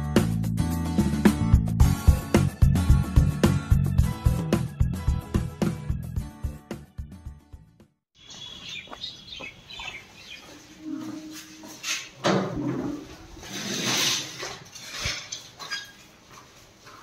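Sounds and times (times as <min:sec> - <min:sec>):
background music with a beat: 0:00.0 - 0:07.9
birds chirping: 0:08.2 - 0:10.9
sandalled footsteps on concrete: 0:08.2 - 0:12.2, 0:16.0 - 0:17.0.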